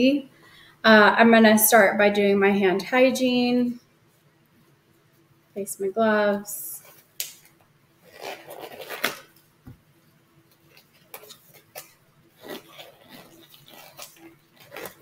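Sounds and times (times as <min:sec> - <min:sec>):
rubber gloves rustling and stretching: 0:06.5 - 0:15.0
glove snaps: 0:07.2 - 0:07.6.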